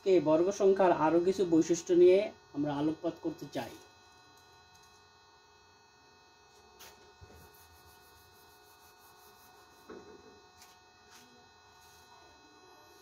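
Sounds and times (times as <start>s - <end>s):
electrical hum: 0.0s - 13.0s
duster wiping whiteboard: 6.5s - 12.2s.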